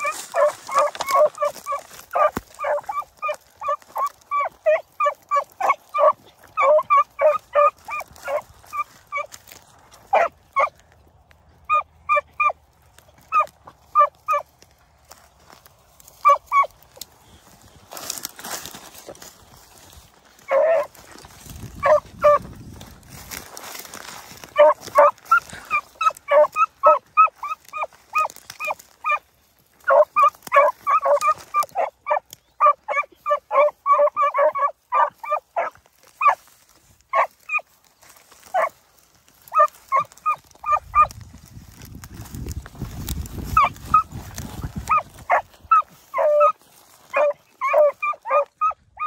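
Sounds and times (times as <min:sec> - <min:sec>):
hounds barking and yelping: 0:00.0 - 0:49.0.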